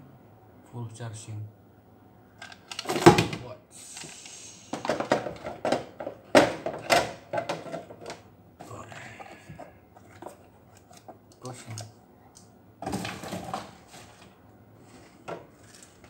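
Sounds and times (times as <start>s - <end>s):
hard plastic clacks and knocks: 4.8s - 8.2s.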